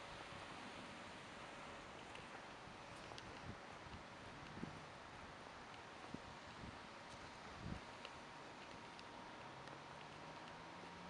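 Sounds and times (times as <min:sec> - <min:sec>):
outdoor background hiss: 0:00.0 - 0:11.0
light ticks: 0:02.0 - 0:04.6, 0:05.6 - 0:05.9, 0:07.0 - 0:11.0.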